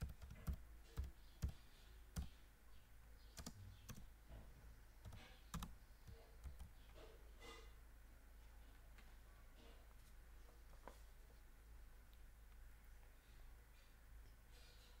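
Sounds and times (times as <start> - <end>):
faint computer keyboard typing: 0.0 - 2.4, 3.2 - 4.1, 5.0 - 7.0.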